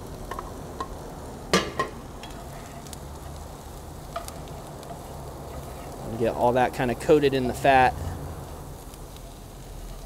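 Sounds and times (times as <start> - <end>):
mushrooms frying in butter: 0.0 - 10.0
utensil knocking on pan: 1.5 - 2.0.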